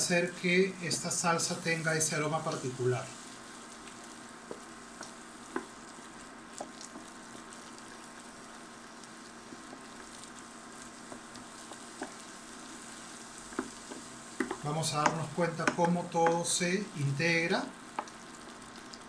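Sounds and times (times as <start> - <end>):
food sizzling in a pan: 0.0 - 19.0
wooden spoon clicking on pan: 13.6 - 16.4.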